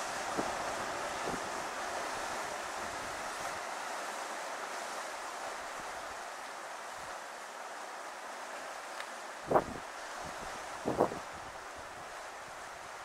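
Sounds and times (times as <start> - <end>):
surf: 0.0 - 13.0
wind: 0.0 - 13.0
wind buffeting microphone: 9.5 - 11.6.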